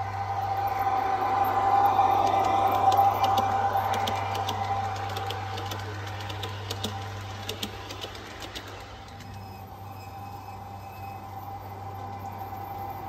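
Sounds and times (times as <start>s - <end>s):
model train motor whine: 0.0s - 13.0s.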